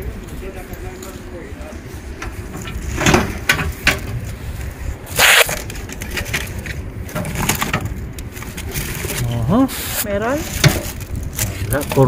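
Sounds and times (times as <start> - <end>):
scraping or rustling: 2.5 - 12.0.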